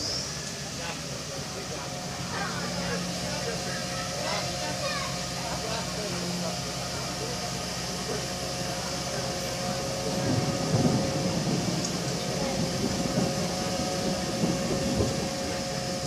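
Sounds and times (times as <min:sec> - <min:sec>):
fire truck engine humming: 0:00.0 - 0:16.0.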